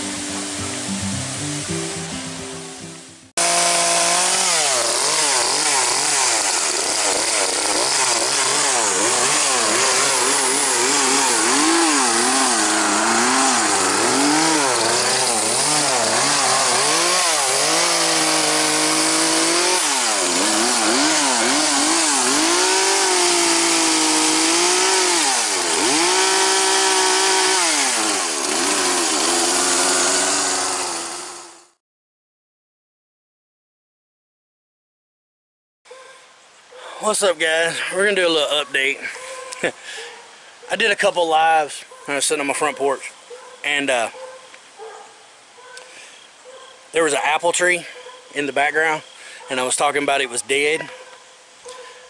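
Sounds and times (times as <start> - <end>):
chainsaw cutting branches: 3.4 - 31.8.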